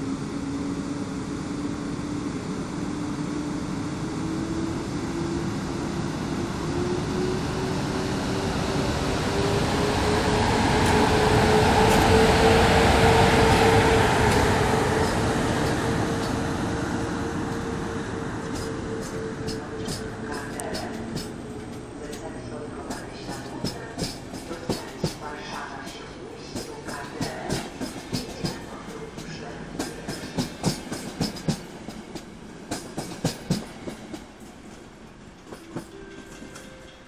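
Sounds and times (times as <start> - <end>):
electric locomotive motor whine: 0.0 - 22.7
train coaches rolling by: 2.6 - 37.0.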